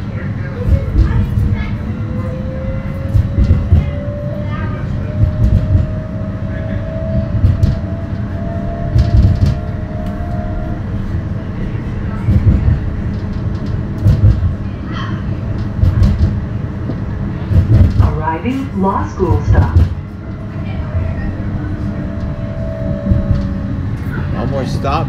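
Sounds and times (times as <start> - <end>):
steel wheels rumbling on rail: 0.0 - 25.0
heavy low knocks: 5.2 - 6.0, 7.2 - 10.1, 12.3 - 14.6, 15.6 - 20.4, 21.2 - 24.0.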